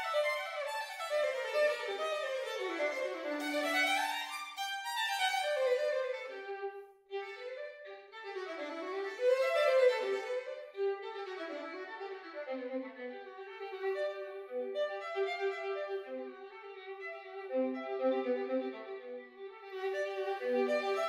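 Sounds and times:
solo violin playing: 0.0s - 21.0s.

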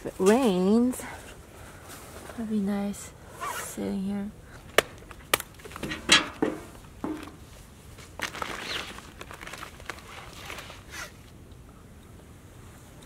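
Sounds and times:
firewood knocking: 4.8s - 7.4s
plastic bag rustling: 7.2s - 11.3s.

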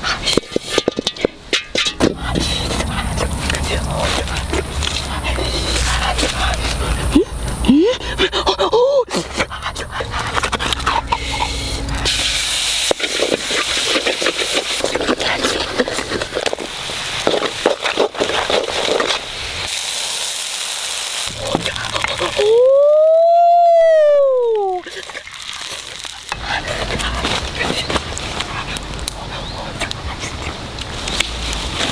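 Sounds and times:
wooden spatula stirring: 0.1s - 6.8s, 12.9s - 19.2s
loud rising and falling tone: 10.5s - 12.5s
food sizzling in a hot pan: 11.2s - 15.0s, 16.6s - 26.4s.

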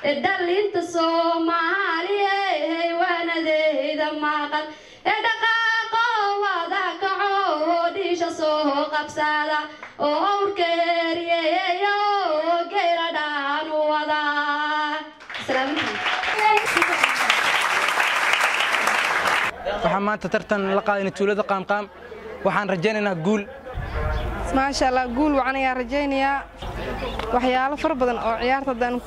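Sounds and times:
woman singing into microphone: 0.0s - 15.9s.

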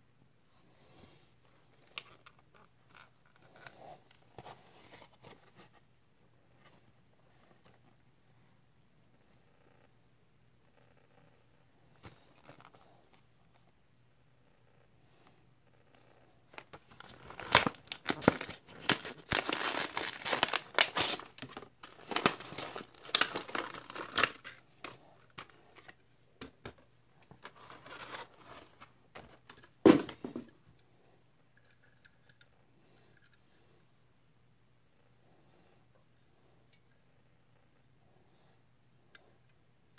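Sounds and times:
plastic packaging tearing and crinkling: 16.6s - 25.5s.

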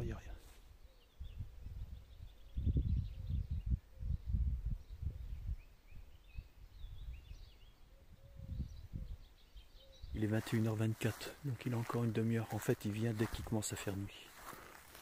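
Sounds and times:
faint bird twittering: 0.0s - 15.0s
wind buffeting microphone: 1.1s - 11.1s.

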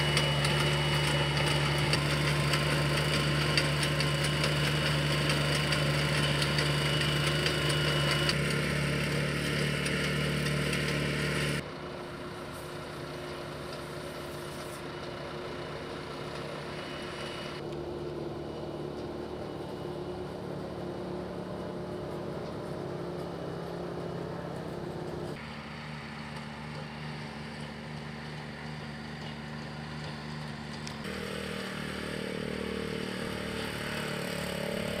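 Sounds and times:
small vehicle engine running: 0.0s - 35.0s.

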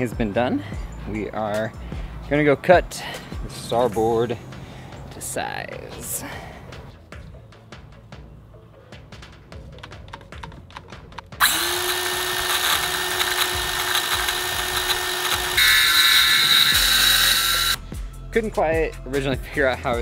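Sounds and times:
circular saw cutting plastic: 11.4s - 17.8s.

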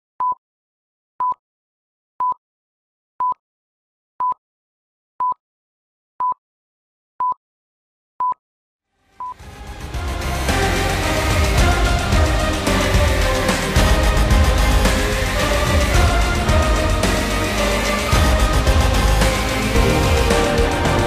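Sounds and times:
music: 9.4s - 21.0s.

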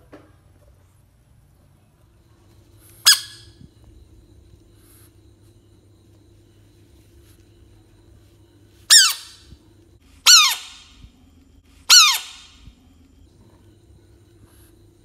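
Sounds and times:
frog screaming: 10.2s - 10.9s, 11.9s - 12.6s.

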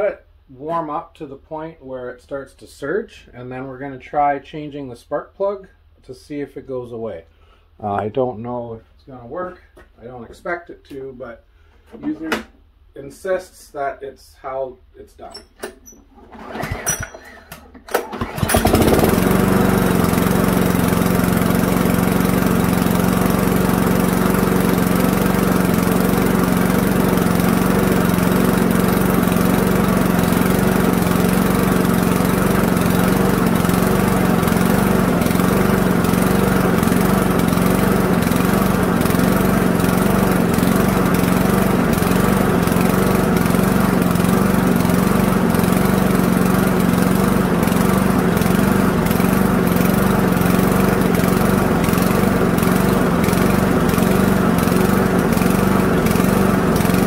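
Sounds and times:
lawnmower engine running: 15.9s - 57.0s.

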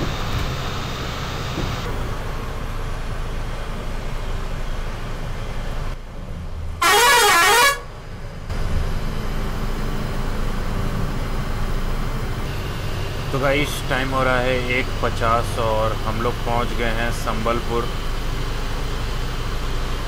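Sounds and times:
bus engine rumble: 0.0s - 20.0s
vehicle horn blast: 6.8s - 7.9s.

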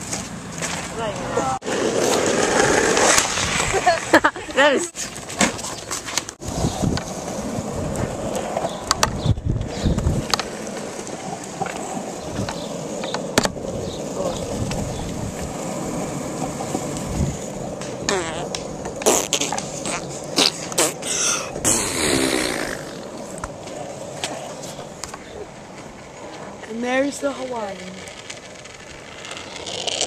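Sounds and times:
longboard wheels rolling on asphalt: 0.0s - 30.0s
sharp clicks over road surface: 7.9s - 13.6s, 17.8s - 20.9s, 27.4s - 30.0s.

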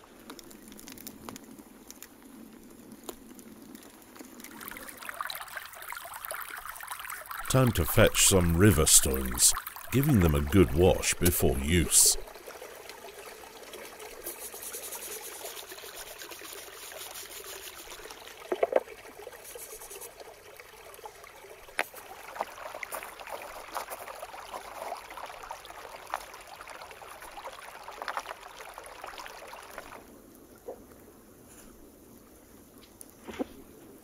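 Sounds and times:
water trickling and splashing: 0.0s - 31.1s.

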